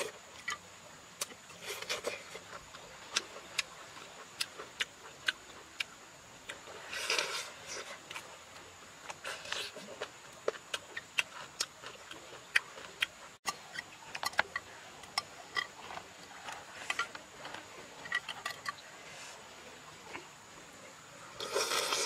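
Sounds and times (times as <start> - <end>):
chewing with wet smacks: 0.4 - 18.9.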